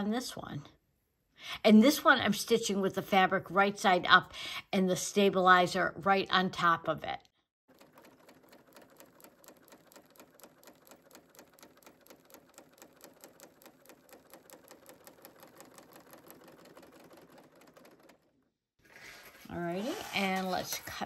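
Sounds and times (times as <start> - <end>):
overlock sewing machine running: 7.7 - 18.5.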